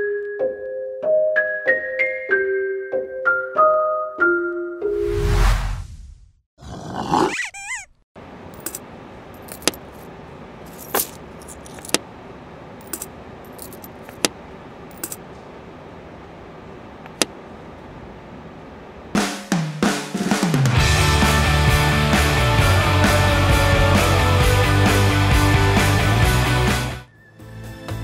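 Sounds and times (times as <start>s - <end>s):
swish sound effect: 4.9s - 6.4s
coin clinking on ceramic: 12.8s - 14.3s, 14.9s - 15.2s.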